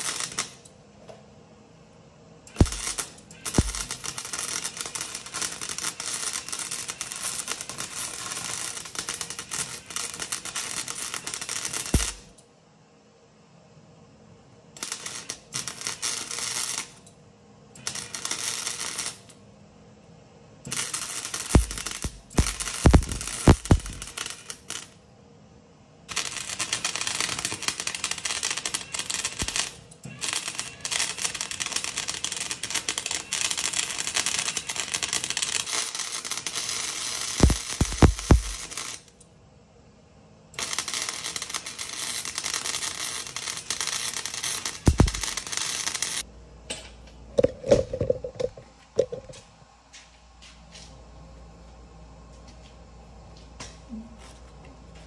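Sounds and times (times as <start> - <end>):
arc welding crackling and hissing: 0.0 - 0.7, 2.5 - 12.4, 14.7 - 17.1, 17.8 - 19.4, 20.6 - 25.0, 26.0 - 39.2, 40.6 - 46.3
sharp knocks: 44.9 - 45.3.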